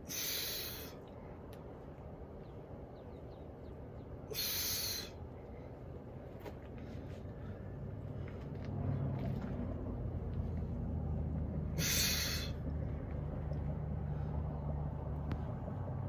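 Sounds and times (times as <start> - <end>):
low rumble: 7.0 - 16.0.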